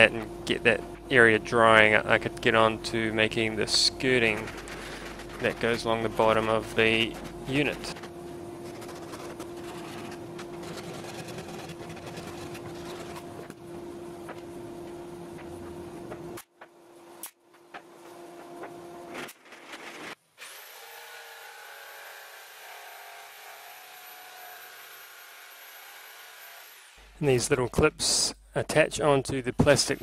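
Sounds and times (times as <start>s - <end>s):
machine hum: 0.0s - 20.1s
saw cutting: 3.8s - 13.6s, 20.4s - 27.2s.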